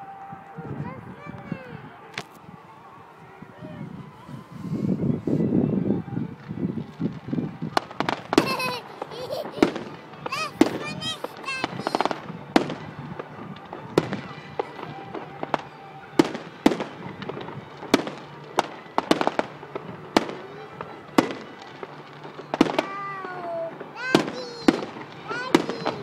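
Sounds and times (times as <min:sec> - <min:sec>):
whistling fireworks gliding down: 0:00.0 - 0:26.0
fireworks bursting with sharp bangs: 0:05.7 - 0:26.0.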